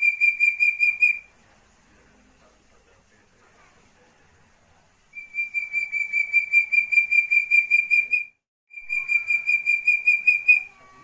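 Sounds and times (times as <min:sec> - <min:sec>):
partridge whistled calls: 0:00.0 - 0:01.3, 0:05.2 - 0:11.0.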